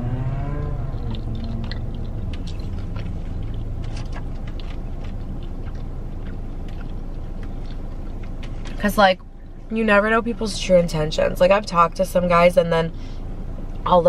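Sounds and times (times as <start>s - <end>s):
low car cabin hum: 0.0s - 14.0s
mouth chewing clicks: 0.6s - 9.3s.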